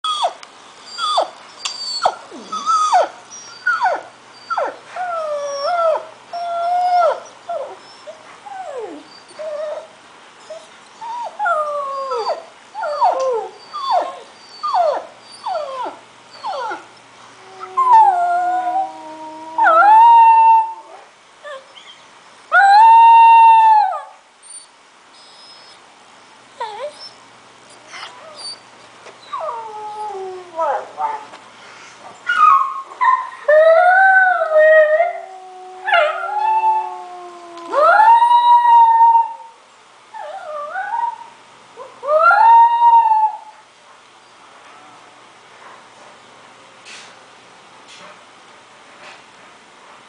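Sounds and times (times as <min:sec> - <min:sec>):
puppy howling and crying: 0:00.1 - 0:25.8, 0:26.6 - 0:28.6, 0:29.2 - 0:31.2, 0:32.3 - 0:39.5.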